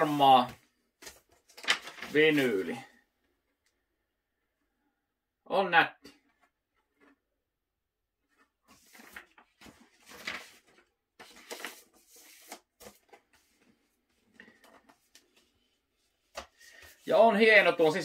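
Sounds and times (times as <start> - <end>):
record sleeve rustling and scraping: 8.3 - 17.1.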